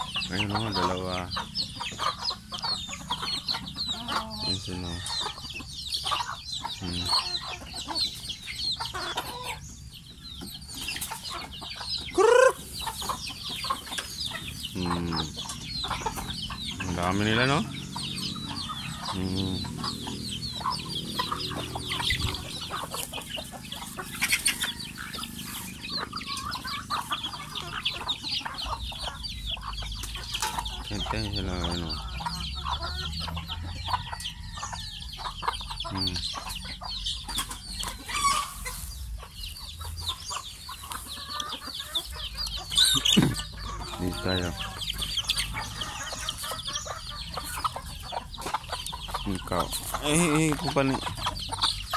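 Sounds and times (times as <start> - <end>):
chickens clucking: 0.0 - 51.9.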